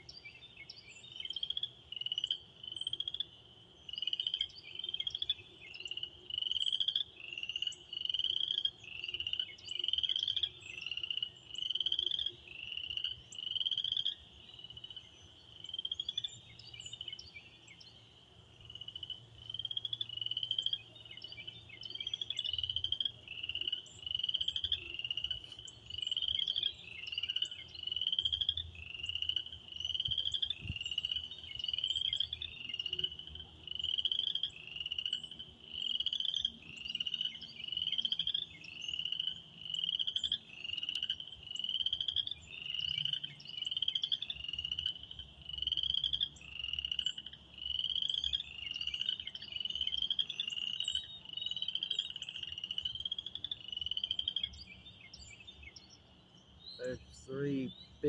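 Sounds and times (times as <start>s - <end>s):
chorus of frogs peeping: 0.0s - 58.0s.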